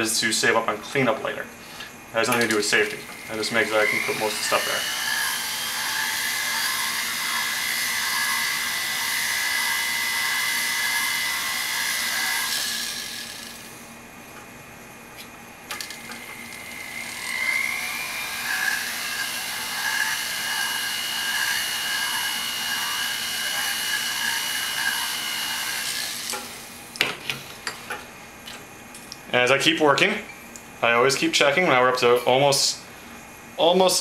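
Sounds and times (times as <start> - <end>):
flex shaft grinding whine: 0.6 - 14.2, 15.6 - 26.9.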